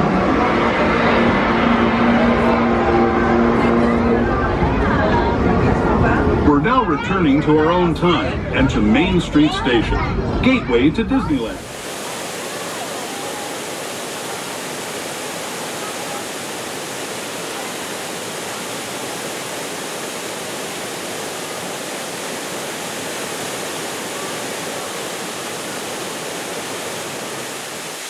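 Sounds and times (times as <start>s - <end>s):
waterfall pouring over rocks: 11.6s - 28.0s.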